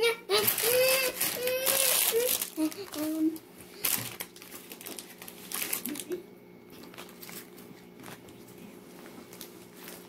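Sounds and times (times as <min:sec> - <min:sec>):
plastic packaging crinkling: 0:00.3 - 0:08.4, 0:09.2 - 0:10.0.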